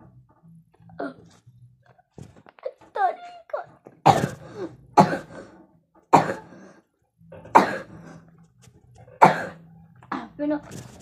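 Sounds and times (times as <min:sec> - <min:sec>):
child coughing: 0:04.0 - 0:04.4, 0:05.0 - 0:05.3, 0:06.1 - 0:06.6, 0:07.5 - 0:07.9, 0:09.2 - 0:09.6.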